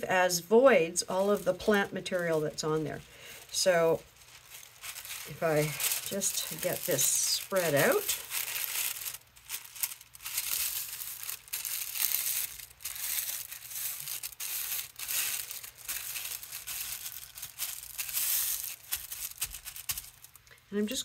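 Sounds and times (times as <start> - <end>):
tissue paper rustling: 0.7 - 20.4.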